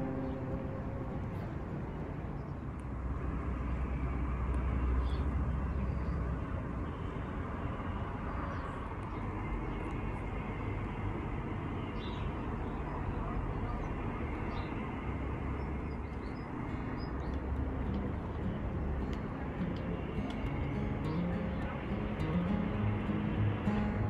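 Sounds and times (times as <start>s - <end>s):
steady low rumble: 0.0s - 3.6s, 15.8s - 24.0s.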